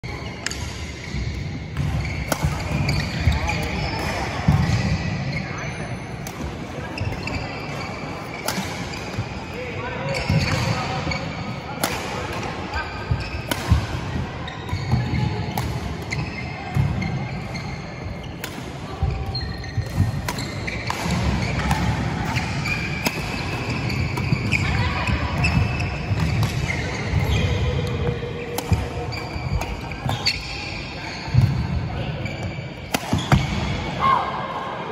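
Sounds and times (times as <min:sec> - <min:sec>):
racket striking shuttlecock: 0:13.4 - 0:13.9.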